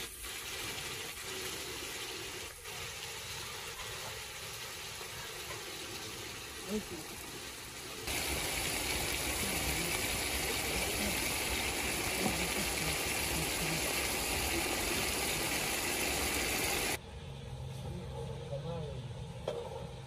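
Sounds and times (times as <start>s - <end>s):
vegetables sizzling in hot oil: 0.0s - 17.0s.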